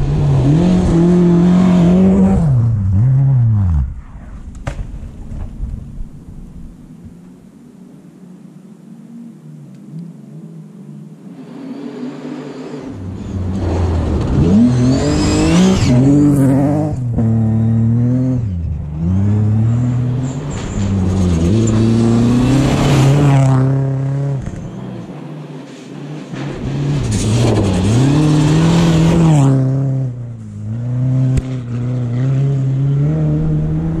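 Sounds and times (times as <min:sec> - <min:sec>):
rally car engine revving: 0:00.0 - 0:04.0, 0:11.4 - 0:34.0.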